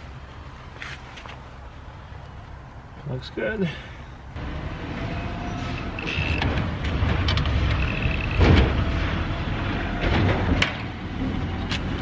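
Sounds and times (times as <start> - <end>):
cordless drill motor whining: 5.8 - 6.4.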